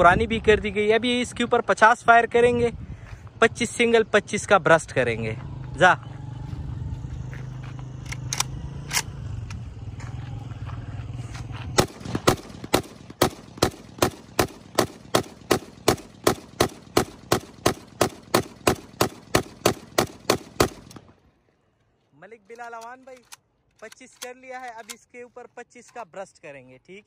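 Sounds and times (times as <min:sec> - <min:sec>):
rifle single shots: 0:11.8 - 0:21.2.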